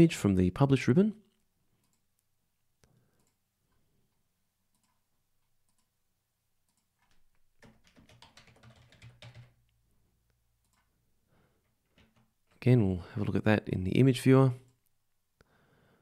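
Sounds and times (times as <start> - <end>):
keyboard typing: 4.7 - 5.9, 6.6 - 9.8, 10.6 - 11.0, 11.6 - 12.6.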